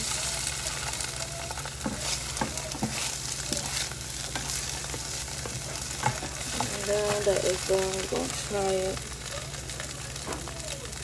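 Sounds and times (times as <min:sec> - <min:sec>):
spatula scraping a pan: 0:00.0 - 0:08.4
eggs sizzling in a frying pan: 0:00.0 - 0:11.0.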